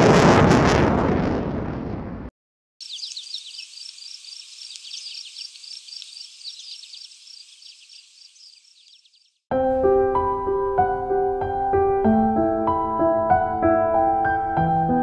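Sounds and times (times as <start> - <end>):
high animal chirping: 2.8 - 9.4.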